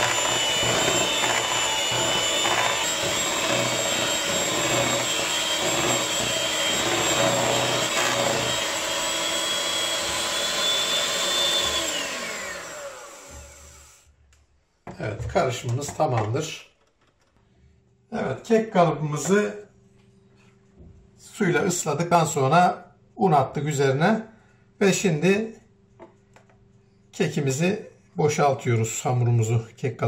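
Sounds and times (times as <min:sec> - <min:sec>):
electric mixer whining: 0:00.0 - 0:14.1.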